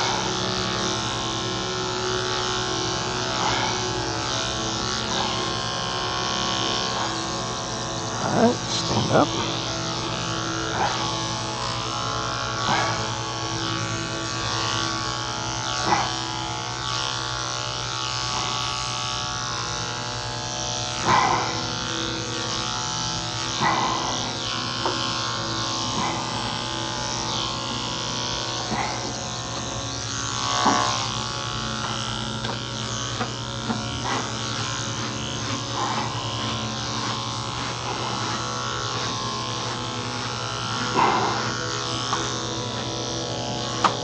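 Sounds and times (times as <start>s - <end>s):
electric dog clipper buzzing: 0.0s - 44.0s.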